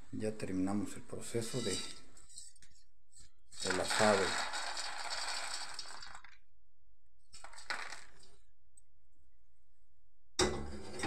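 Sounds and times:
peanuts rattling onto plate: 0:07.4 - 0:08.3
metal pot clunk: 0:10.4 - 0:11.0.

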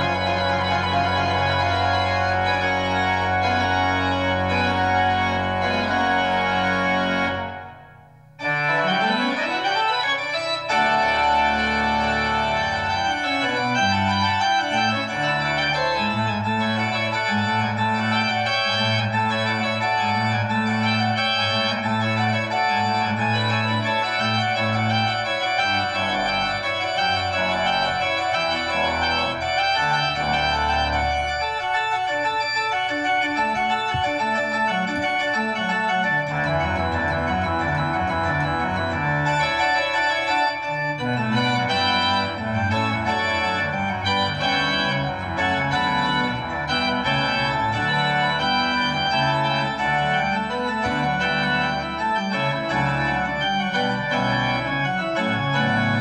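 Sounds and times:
pipe organ playing chords: 0:00.0 - 0:56.0.

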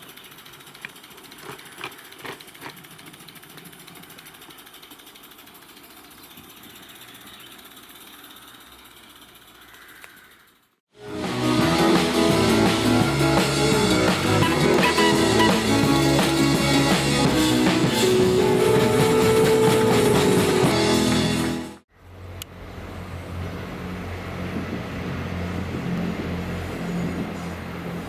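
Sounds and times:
music: 0:11.0 - 0:21.8.

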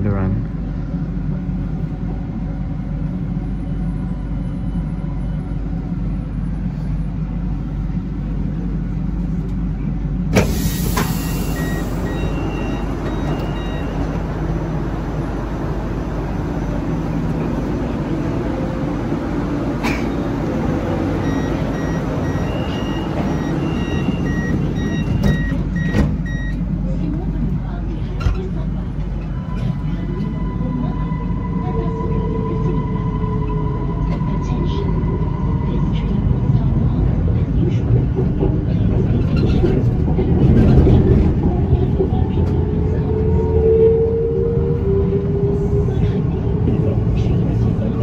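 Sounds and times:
train standing hum: 0:00.0 - 0:48.0
pneumatic air release hiss: 0:10.4 - 0:11.6
short beeps: 0:11.2 - 0:14.1, 0:21.2 - 0:26.6.

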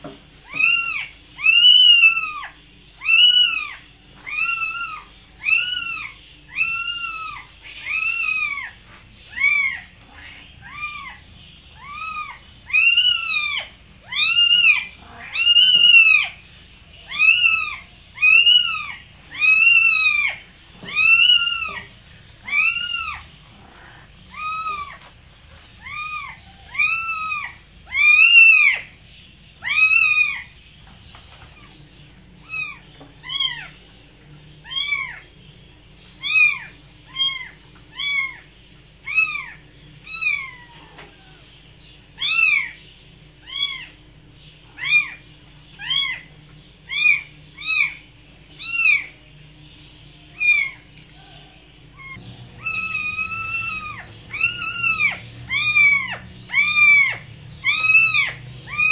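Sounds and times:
cat meowing: 0:00.4 - 0:11.2, 0:11.8 - 0:16.4, 0:17.1 - 0:25.0, 0:25.8 - 0:28.8, 0:34.6 - 0:35.2, 0:36.2 - 0:38.4, 0:51.9 - 0:58.9.

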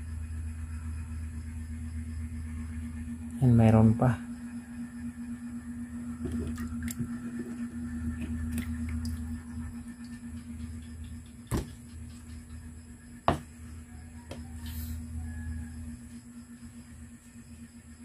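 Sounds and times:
steady hum: 0:00.0 - 0:18.0
fish handling rumble: 0:05.8 - 0:15.8.

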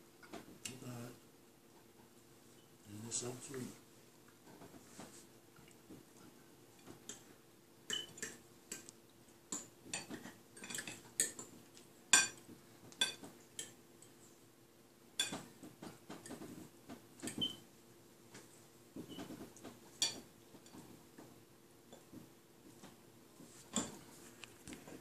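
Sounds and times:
forks clinking on ceramic plates: 0:07.9 - 0:08.8, 0:10.0 - 0:11.5.

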